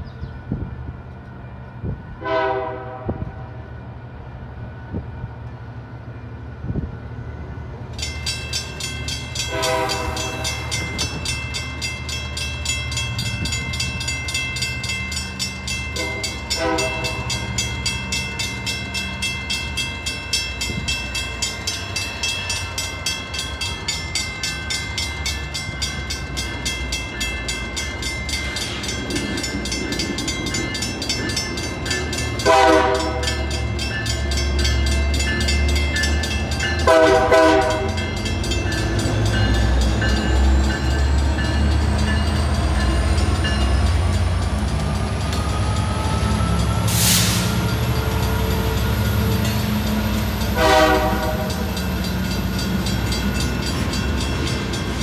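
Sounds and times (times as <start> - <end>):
train horn blasts: 2.2 - 3.7, 9.4 - 10.7, 15.9 - 17.4, 32.4 - 33.6, 36.8 - 38.0, 50.5 - 51.7
railroad crossing bell ringing: 4.9 - 55.0.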